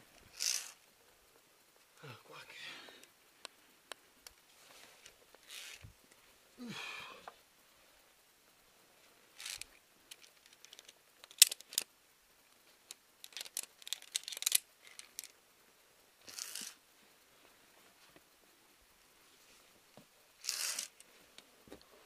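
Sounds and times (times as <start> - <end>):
carabiners clinking on cable: 9.4 - 11.9, 13.2 - 15.3, 16.3 - 16.8.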